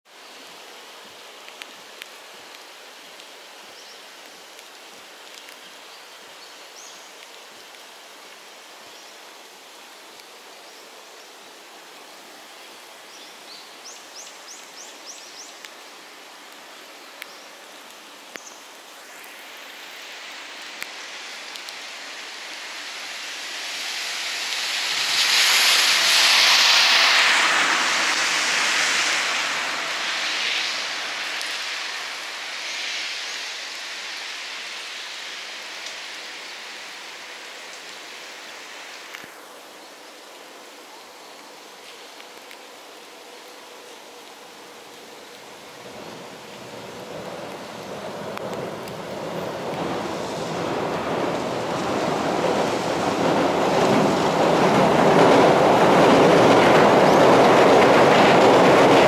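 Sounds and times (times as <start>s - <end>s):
light rain hissing: 0.1s - 59.0s
train crossing steel bridge: 20.4s - 32.7s, 45.6s - 59.0s.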